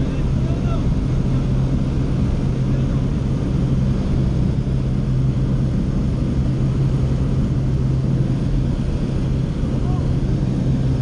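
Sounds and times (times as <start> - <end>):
propeller airplane engine hum: 0.0 - 11.0.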